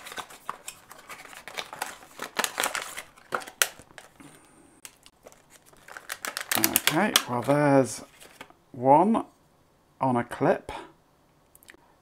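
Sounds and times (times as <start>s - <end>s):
cardboard packaging opening: 0.0s - 8.5s
plastic bag crinkling: 0.0s - 8.5s.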